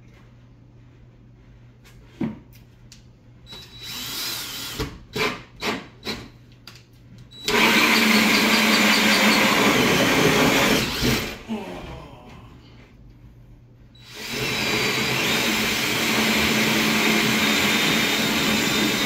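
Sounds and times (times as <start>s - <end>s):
hole saw cutting drywall: 7.4s - 11.4s, 14.0s - 19.0s.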